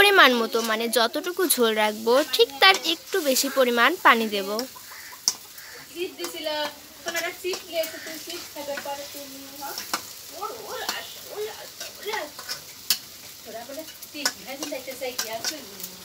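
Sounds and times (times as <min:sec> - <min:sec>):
gravy sizzling: 0:00.0 - 0:16.0
spatula scraping metal pan: 0:00.4 - 0:10.1.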